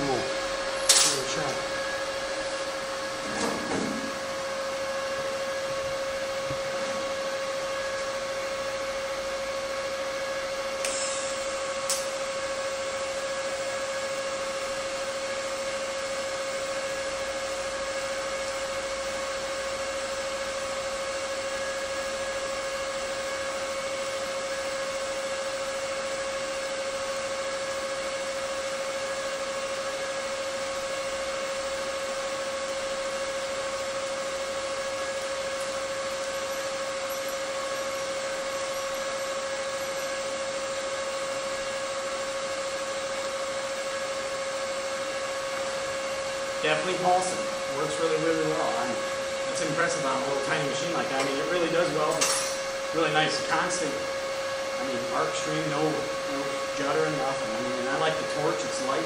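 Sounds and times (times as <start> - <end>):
electrical hum of welder: 0.0 - 59.0
welding arc crackle: 10.8 - 12.3.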